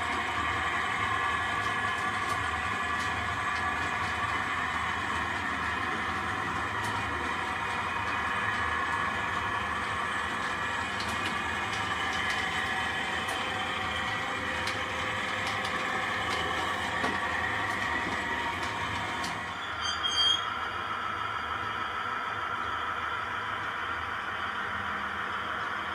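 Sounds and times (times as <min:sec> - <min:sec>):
wheel rumble: 0:00.0 - 0:19.5.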